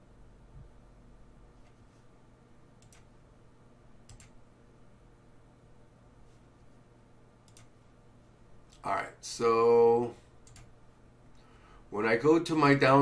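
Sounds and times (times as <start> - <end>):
faint room hum: 0.0 - 13.0
computer mouse clicks: 2.8 - 3.1, 4.0 - 4.4, 7.4 - 7.8, 10.4 - 10.7.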